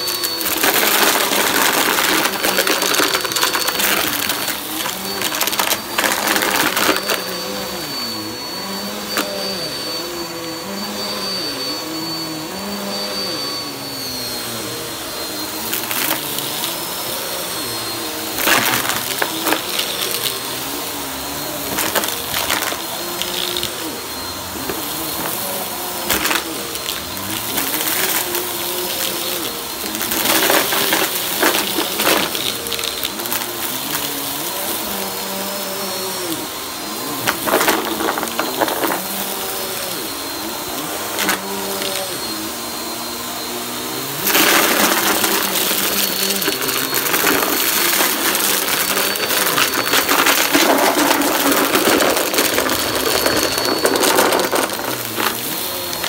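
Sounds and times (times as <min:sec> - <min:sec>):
vacuum cleaner running: 0:00.0 - 0:56.0
tissue paper rattling up nozzle: 0:44.3 - 0:56.0.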